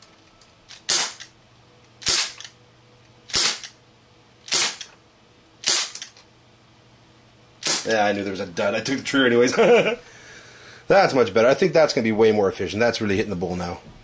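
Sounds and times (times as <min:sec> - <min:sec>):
airsoft revolver shots: 0:00.8 - 0:01.3, 0:02.0 - 0:02.5, 0:03.3 - 0:03.8, 0:04.5 - 0:04.9, 0:05.6 - 0:06.1, 0:07.6 - 0:07.9.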